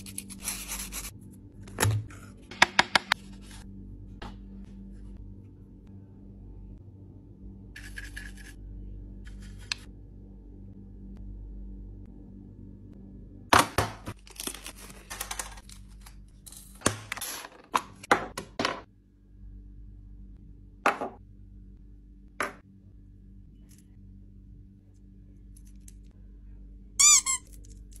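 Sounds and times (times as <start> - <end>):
faint steady hum: 3.2 - 13.5.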